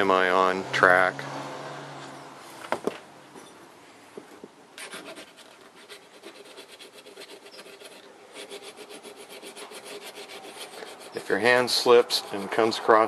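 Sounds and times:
hone scraping steel blade: 0:04.8 - 0:12.8.

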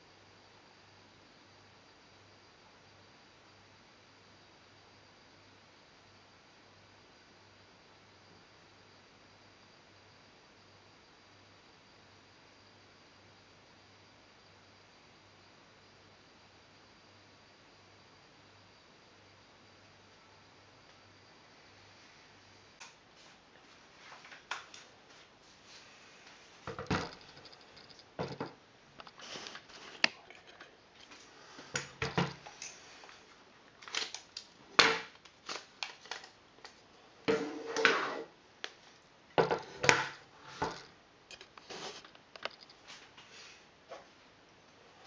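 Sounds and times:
plastic rifle parts clicking and rattling: 0:33.8 - 0:36.8, 0:41.3 - 0:42.8.

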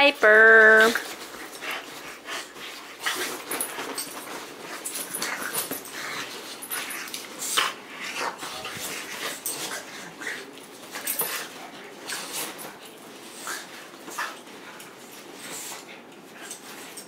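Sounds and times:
dogs growling and yipping: 0:01.3 - 0:11.5
collar tags jingling: 0:03.0 - 0:08.1.

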